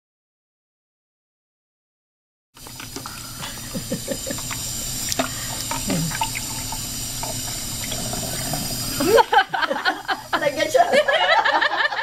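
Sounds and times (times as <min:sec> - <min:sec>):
faucet running into sink: 0:02.6 - 0:11.4.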